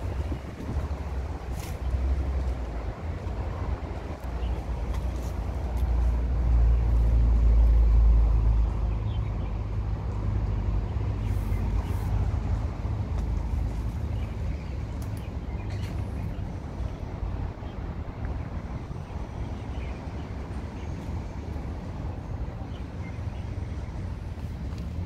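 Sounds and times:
road traffic rumble: 0.0s - 25.0s.

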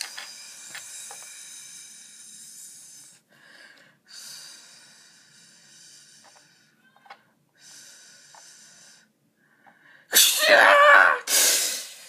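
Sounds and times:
person hissing through mouth: 10.1s - 12.0s.

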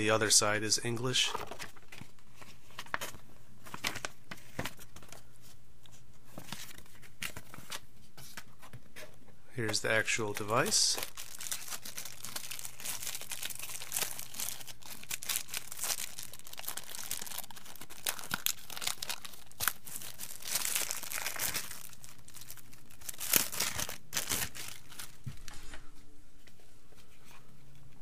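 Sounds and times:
plastic film crinkling and tearing: 10.1s - 25.6s.

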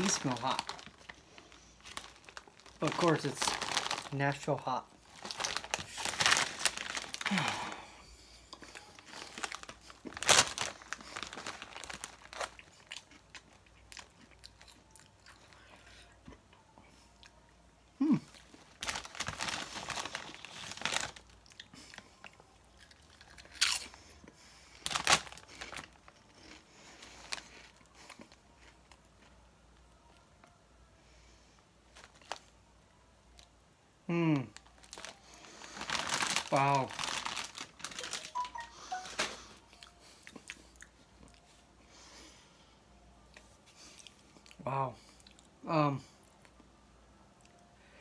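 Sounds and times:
chip bag rustling: 0.0s - 7.8s, 8.6s - 14.1s, 18.5s - 21.3s, 24.8s - 27.8s, 34.6s - 39.5s
potato chips crunching: 0.0s - 7.9s, 8.5s - 15.6s, 18.2s - 24.2s, 34.6s - 41.4s.

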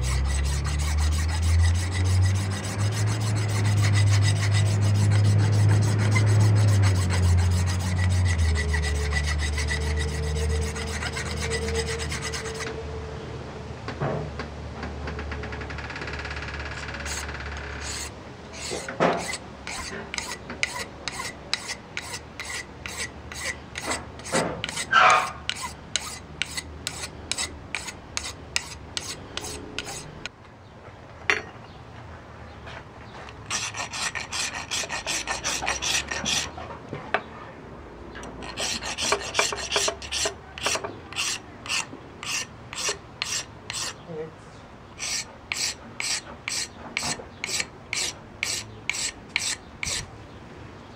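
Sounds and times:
rasp scraping stone: 0.0s - 12.7s, 17.0s - 30.1s, 33.5s - 36.6s, 38.3s - 44.0s, 45.0s - 50.1s.

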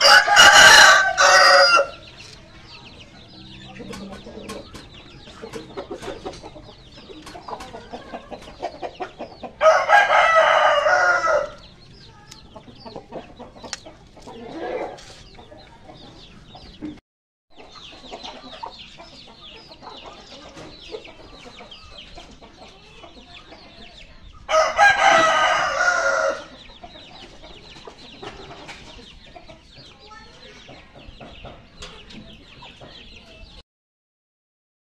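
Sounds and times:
rooster crowing: 0.0s - 2.0s, 9.6s - 11.6s, 24.5s - 26.5s.

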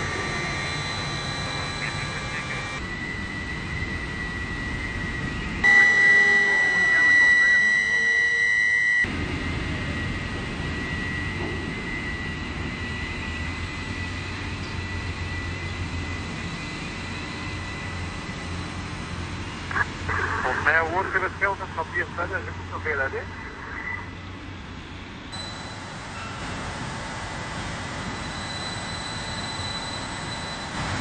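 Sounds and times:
high electric whine: 0.0s - 31.0s
low hum and rumble: 0.0s - 31.0s
multi-tone crane whine: 0.0s - 31.0s.

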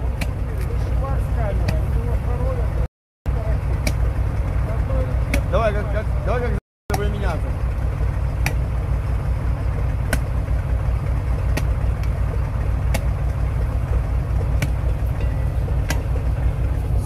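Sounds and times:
truck engine idling: 0.0s - 17.0s
spade chopping tree stump: 3.8s - 4.1s, 8.4s - 8.6s, 10.1s - 10.3s, 11.5s - 11.8s, 12.8s - 13.1s, 14.5s - 16.2s.

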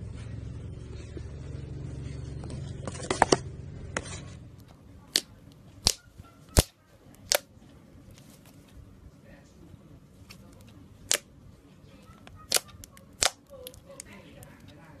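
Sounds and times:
low steady rumble: 0.0s - 15.0s
slime crackling clicks: 6.6s - 7.5s, 12.3s - 14.7s.

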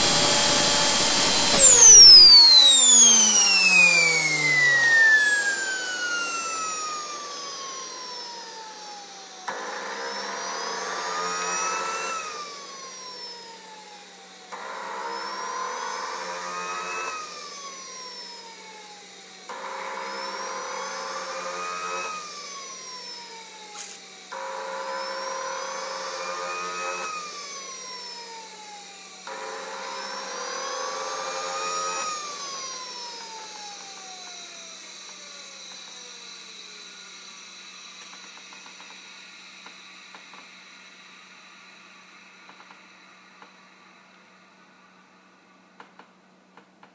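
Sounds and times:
sharp click: 0.0s - 5.6s
rotor whining down: 0.0s - 11.9s
turbine spinning up with whine: 0.0s - 45.6s.

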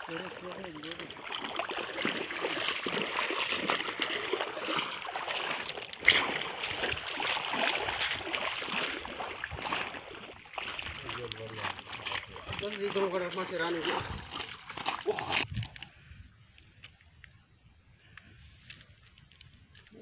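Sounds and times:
footsteps splashing through water: 0.0s - 16.0s.

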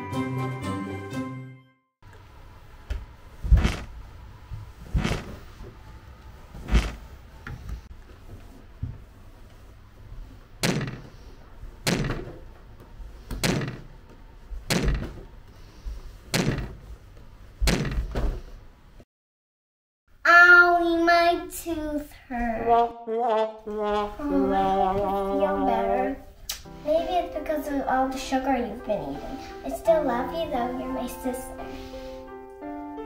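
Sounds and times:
child thumping down wooden stairs: 3.5s - 3.9s, 4.9s - 5.4s, 17.6s - 18.4s.

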